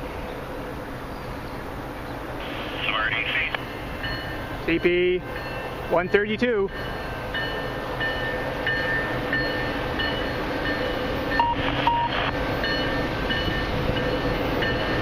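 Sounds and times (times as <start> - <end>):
freight train rumble: 0.0 - 15.0
short beeps: 11.3 - 12.3.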